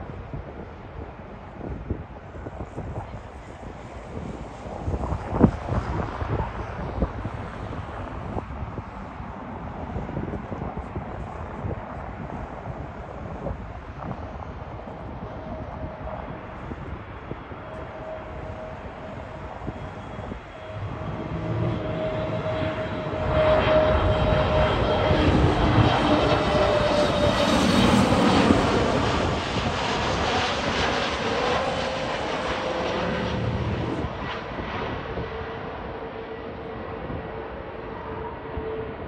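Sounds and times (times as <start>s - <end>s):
jet engine whine: 0.0s - 39.0s
jet plane passing low: 0.0s - 39.0s.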